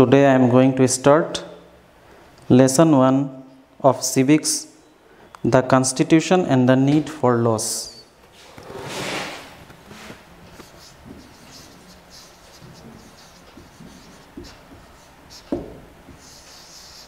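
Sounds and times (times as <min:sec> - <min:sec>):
marker writing on whiteboard: 0:09.0 - 0:17.0
light knocks: 0:15.5 - 0:16.2.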